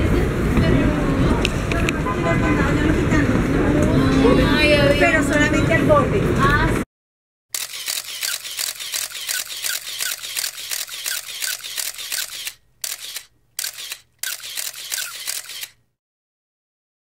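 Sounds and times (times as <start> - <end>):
camera shutter clicking: 7.6 - 15.8.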